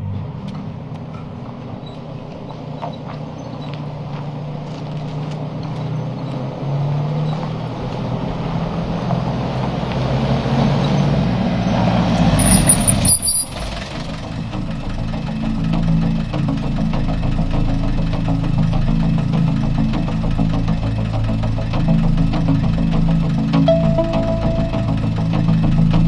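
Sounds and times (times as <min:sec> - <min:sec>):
car engine running: 0:00.0 - 0:10.1, 0:12.2 - 0:26.0
brief high squeal: 0:12.4 - 0:13.8.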